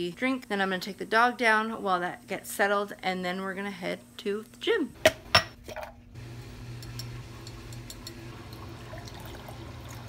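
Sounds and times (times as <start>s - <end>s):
water pouring into a glass: 7.9s - 10.0s.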